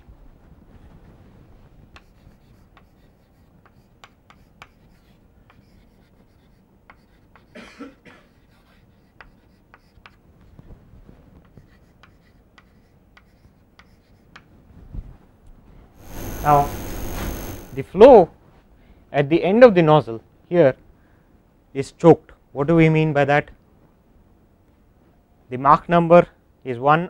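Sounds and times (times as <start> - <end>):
chalk scratching on chalkboard: 2.0 - 7.6, 8.2 - 10.2, 11.4 - 14.4
person coughing: 7.5 - 8.3.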